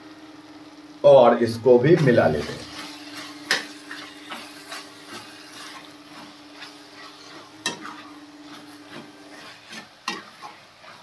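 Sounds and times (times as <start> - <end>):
light sizzle: 0.0 - 11.0
metal spatula scraping a pan: 2.4 - 11.0.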